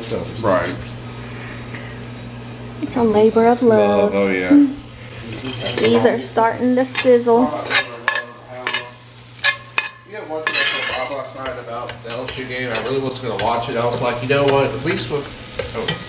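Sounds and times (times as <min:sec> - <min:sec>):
vegetables sizzling: 0:00.0 - 0:16.0
metal spoon scraping vegetables: 0:05.2 - 0:06.0, 0:06.9 - 0:14.8.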